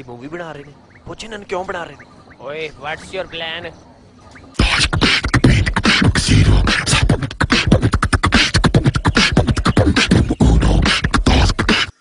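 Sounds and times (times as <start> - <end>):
person beatboxing: 4.6 - 12.0.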